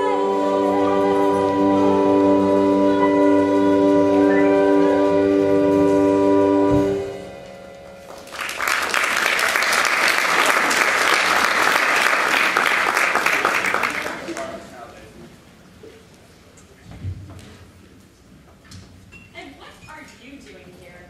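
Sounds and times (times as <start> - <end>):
audience applause: 8.1 - 14.8.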